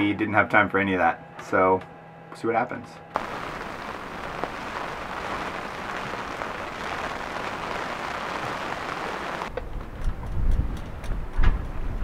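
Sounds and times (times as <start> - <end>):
rain falling on sea: 3.2 - 9.5.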